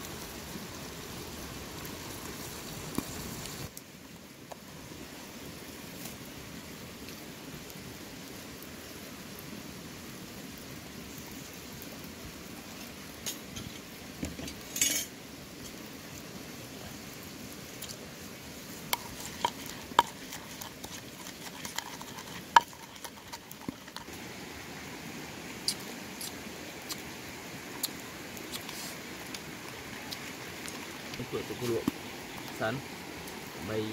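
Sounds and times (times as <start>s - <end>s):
steady background hiss: 0.0s - 33.9s
lime squeezing hiss: 17.7s - 32.6s.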